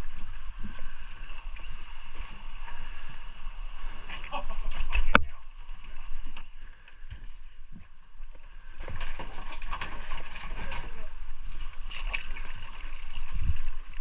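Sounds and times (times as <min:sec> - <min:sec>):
water lapping against boat hull: 0:00.0 - 0:14.0
low wind rumble on microphone: 0:12.9 - 0:14.0.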